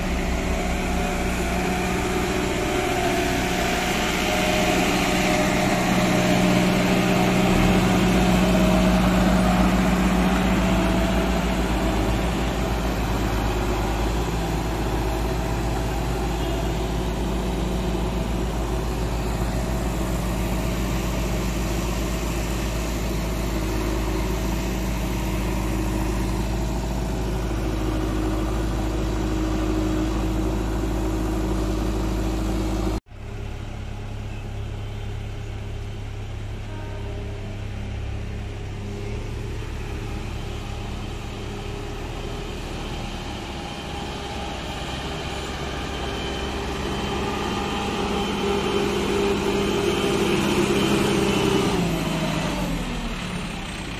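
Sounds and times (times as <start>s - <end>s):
backhoe loader engine idling: 0.0s - 53.9s
motor grader diesel engine running: 0.0s - 53.9s.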